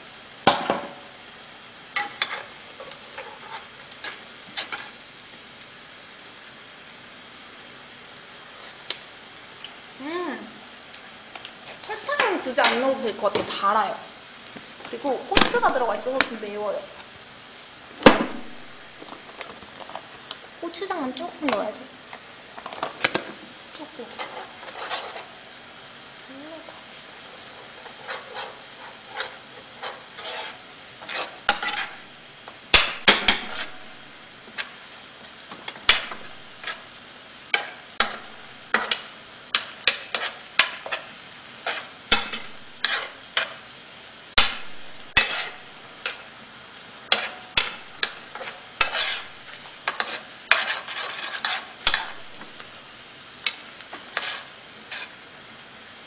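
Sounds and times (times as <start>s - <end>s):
faint sizzle: 0.0s - 56.0s
spatula scraping frying pan: 1.9s - 5.1s, 22.5s - 25.6s, 26.4s - 36.9s, 37.5s - 43.7s, 44.4s - 46.4s, 47.1s - 55.2s.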